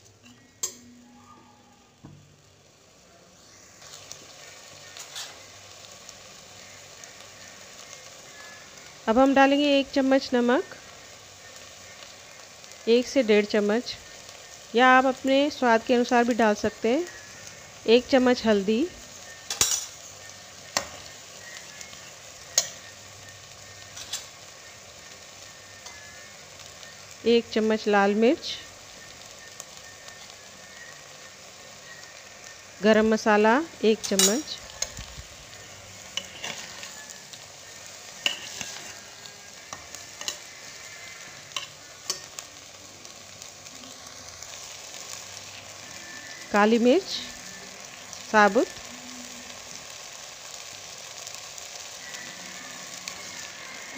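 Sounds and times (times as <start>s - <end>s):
food sizzling in cooker: 0.0s - 53.9s
rice frying in oil: 0.0s - 53.9s
metal spatula scraping pot: 24.0s - 24.3s, 36.1s - 37.0s, 38.2s - 39.0s
spatula clinking on pot: 38.2s - 38.9s.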